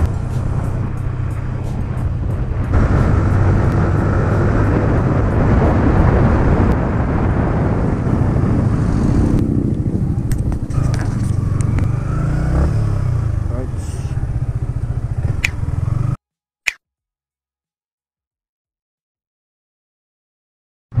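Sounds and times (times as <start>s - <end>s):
wind noise on microphone: 0.0s - 13.3s
motorcycle engine: 0.0s - 16.2s.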